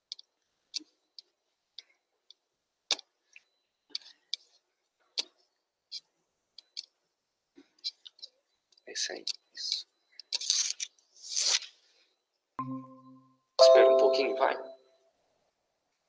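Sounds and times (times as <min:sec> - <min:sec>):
computer clicks and taps: 0:12.6 - 0:14.7.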